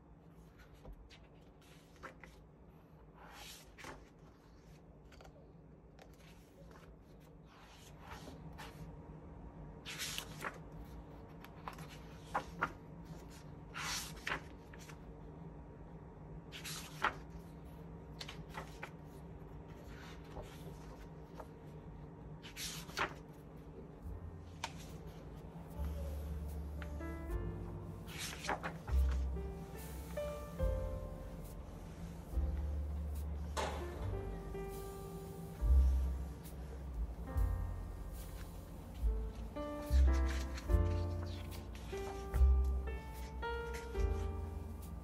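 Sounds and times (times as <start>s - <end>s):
faint steady hum: 0.0s - 45.0s
pages turning: 0.4s - 2.5s, 3.2s - 8.9s, 9.8s - 15.0s, 16.5s - 21.8s, 22.4s - 23.6s, 24.4s - 26.0s, 27.9s - 30.6s, 38.0s - 44.9s.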